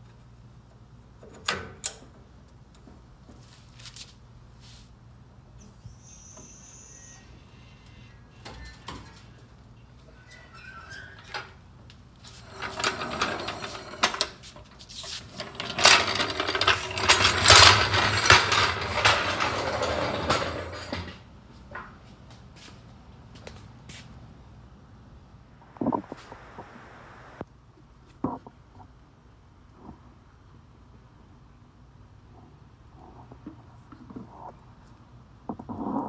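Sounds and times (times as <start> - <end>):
floor jack clattering on concrete: 12.4 - 14.5, 15.2 - 21.9.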